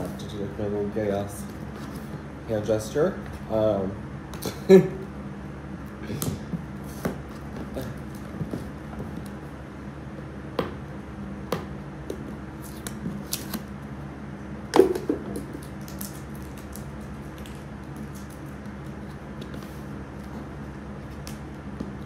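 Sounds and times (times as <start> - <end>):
room fan humming: 0.0 - 22.0
cardboard and tape crackling: 12.2 - 13.8, 14.9 - 22.0.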